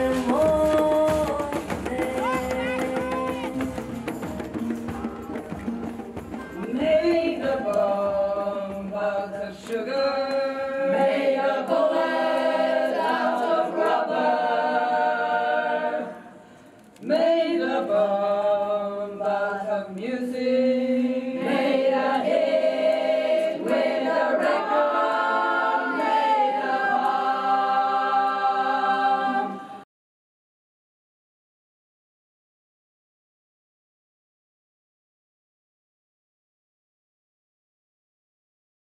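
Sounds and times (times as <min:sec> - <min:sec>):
choir singing held notes: 0:06.5 - 0:29.8.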